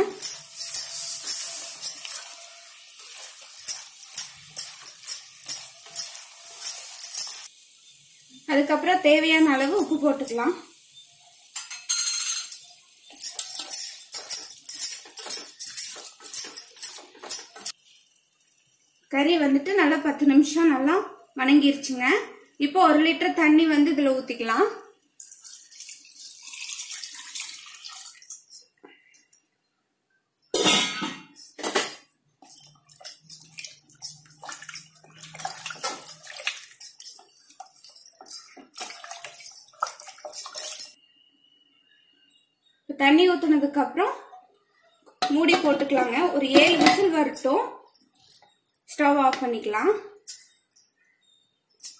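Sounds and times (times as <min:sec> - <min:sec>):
liquid sloshing in a pot: 0:32.7 - 0:41.0.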